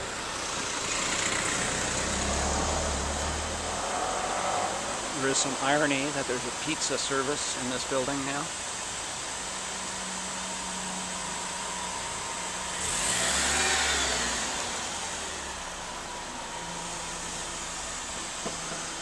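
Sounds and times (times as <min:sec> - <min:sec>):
car passing by: 0:00.0 - 0:05.5, 0:12.7 - 0:17.9
low hum of street noise: 0:00.0 - 0:19.0.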